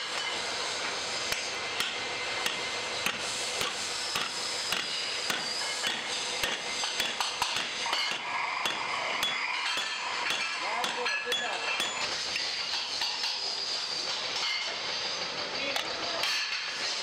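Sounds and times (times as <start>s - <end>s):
workshop din: 0.0s - 17.0s
hammer tapping on metal: 1.3s - 12.1s.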